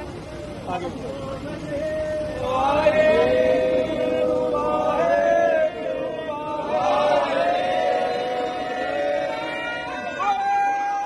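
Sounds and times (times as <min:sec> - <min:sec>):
crowd chanting in unison: 0:01.8 - 0:11.0.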